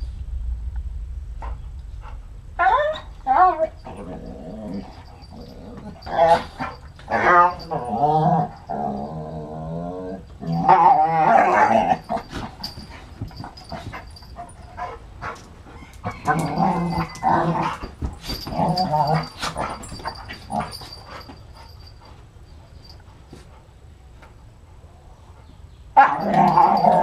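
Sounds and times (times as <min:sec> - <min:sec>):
dogs play-growling: 0:02.6 - 0:22.2, 0:26.0 - 0:27.0.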